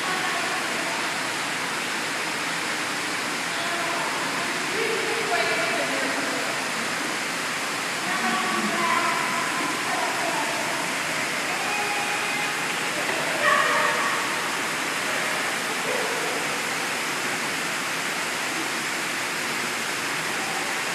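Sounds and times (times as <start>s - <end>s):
water moving: 0.0s - 18.7s
indoor pool rushing noise: 0.0s - 20.9s
children calling out: 11.4s - 16.4s.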